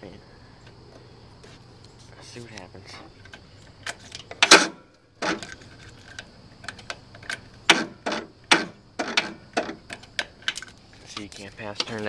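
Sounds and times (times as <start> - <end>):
mower ignition clicking: 3.8 - 12.0.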